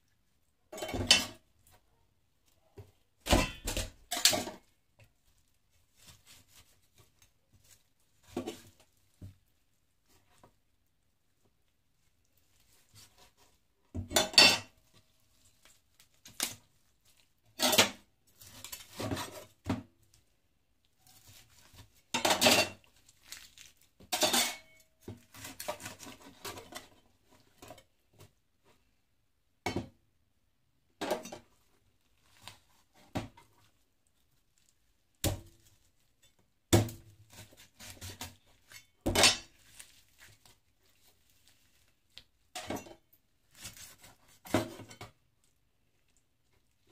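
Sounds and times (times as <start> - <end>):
handling of meat: 22.8 - 24.1, 31.6 - 36.6, 39.6 - 42.5.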